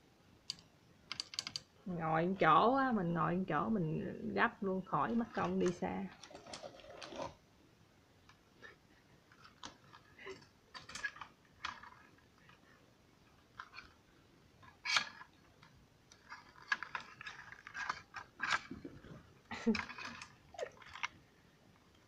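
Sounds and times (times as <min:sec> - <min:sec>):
grabber tool clicking and rattling: 0:14.6 - 0:21.2.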